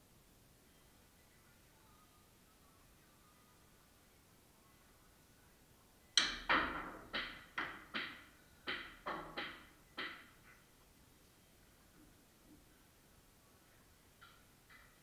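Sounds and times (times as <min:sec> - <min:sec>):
cue striking ball clack: 0:06.2 - 0:10.4
pool balls knocking: 0:06.2 - 0:10.5.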